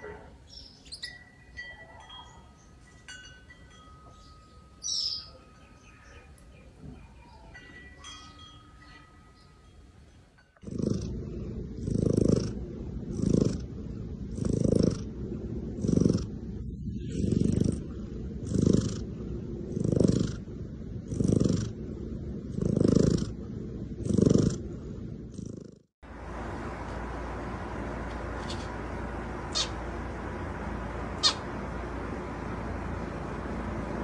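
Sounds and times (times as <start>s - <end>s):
cat purring: 10.6s - 25.8s.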